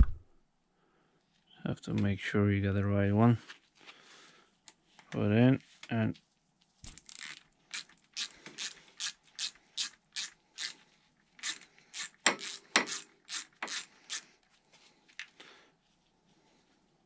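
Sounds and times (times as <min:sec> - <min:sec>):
ratchet clicking: 0:06.9 - 0:10.7, 0:11.4 - 0:14.2.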